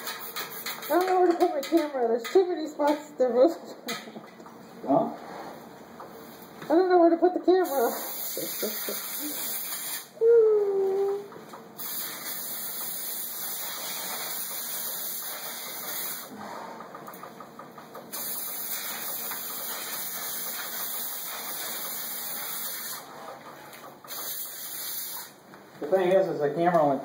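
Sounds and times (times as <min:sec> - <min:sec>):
pressurized spray hissing: 0:07.6 - 0:10.1, 0:11.8 - 0:16.3, 0:18.1 - 0:23.0, 0:24.1 - 0:25.3.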